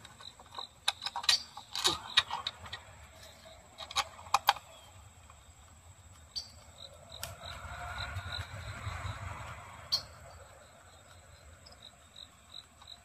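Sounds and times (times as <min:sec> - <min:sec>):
metal and plastic clicks: 0:00.0 - 0:05.4
faint high chirping: 0:00.1 - 0:13.0.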